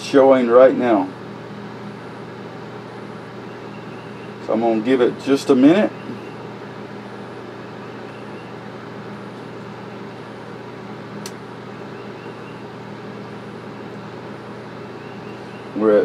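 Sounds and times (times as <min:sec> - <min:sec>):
low electrical hum: 0:00.0 - 0:16.0
sharp click: 0:11.2 - 0:11.4.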